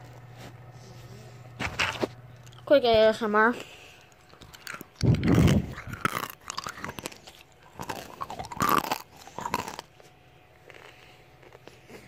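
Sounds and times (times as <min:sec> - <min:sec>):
candy crunching in mouth: 0:04.0 - 0:12.0.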